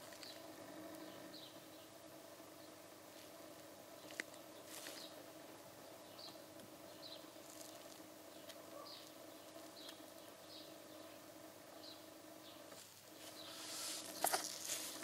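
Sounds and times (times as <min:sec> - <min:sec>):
faint steady hum: 0:00.0 - 0:15.0
plastic bottle rustling: 0:13.5 - 0:15.0.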